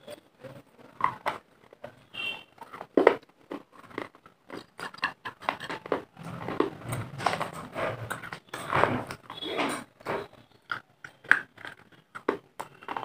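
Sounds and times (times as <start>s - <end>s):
chewing crunchy clay: 0.9s - 13.0s.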